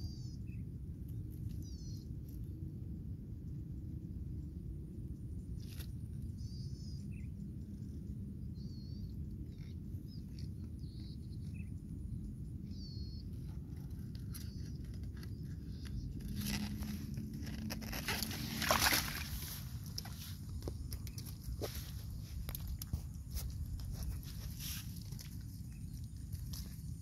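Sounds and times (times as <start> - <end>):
leaves and grass rustling: 13.8 - 27.0.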